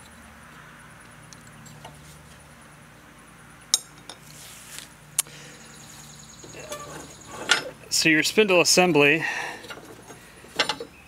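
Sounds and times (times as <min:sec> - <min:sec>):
metallic clinks of parts: 0:06.4 - 0:07.8, 0:09.6 - 0:11.0.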